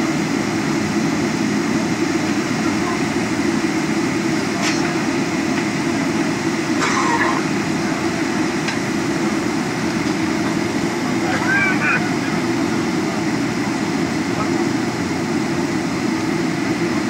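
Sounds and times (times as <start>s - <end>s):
aircraft engines rumbling in cabin: 0.0s - 17.0s.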